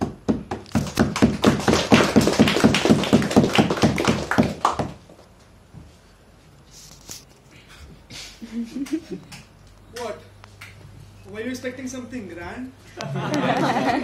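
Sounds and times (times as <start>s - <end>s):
hands clapping rhythmically: 0.0s - 5.1s, 8.7s - 10.8s.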